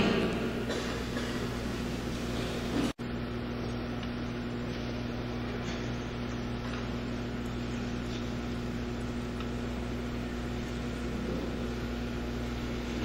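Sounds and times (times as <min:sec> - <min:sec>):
electrical hum: 0:00.0 - 0:13.0.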